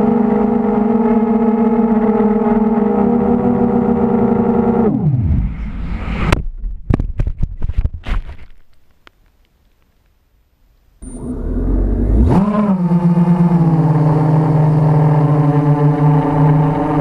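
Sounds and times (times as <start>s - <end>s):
drone motors buzzing: 0.0s - 6.4s, 11.0s - 17.0s.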